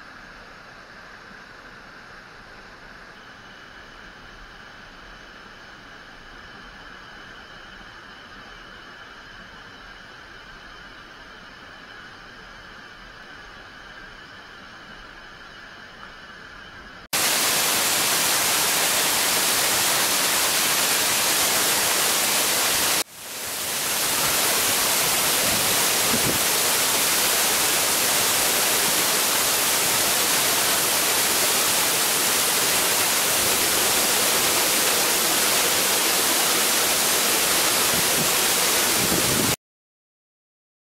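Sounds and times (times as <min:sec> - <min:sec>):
loud even hiss: 0:17.1 - 0:39.6.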